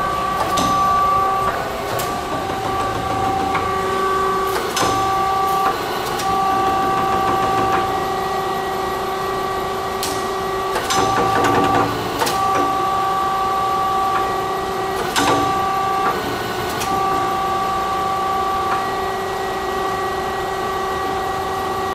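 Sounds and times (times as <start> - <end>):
lathe machine whine: 0.0 - 21.9
sharp machine clunks: 0.1 - 8.0, 10.0 - 12.8.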